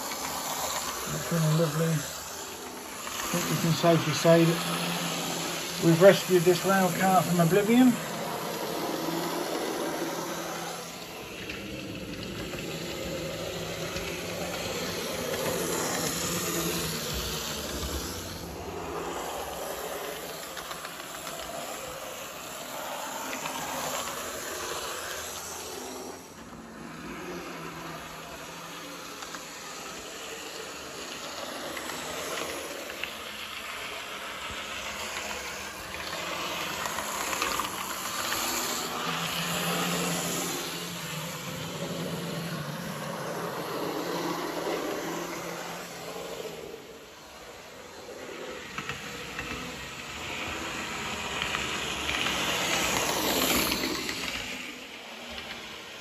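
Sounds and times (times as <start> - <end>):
wheels rumbling on rails: 0.0 - 22.0
model train motor whirring: 0.0 - 56.0.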